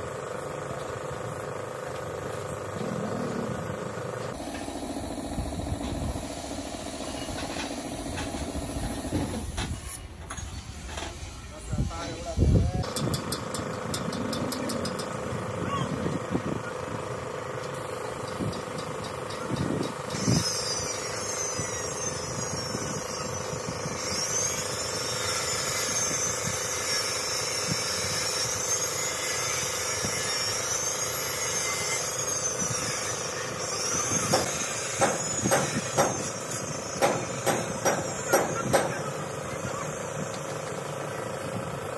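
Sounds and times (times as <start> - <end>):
engine hum: 0.0 - 9.4, 12.4 - 29.0
high wavering whine: 0.0 - 41.9
sharp knocks: 34.3 - 36.3, 37.0 - 39.0.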